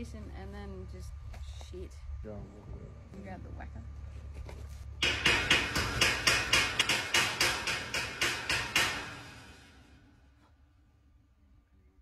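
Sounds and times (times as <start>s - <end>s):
hammer tapping on metal: 5.0s - 9.6s.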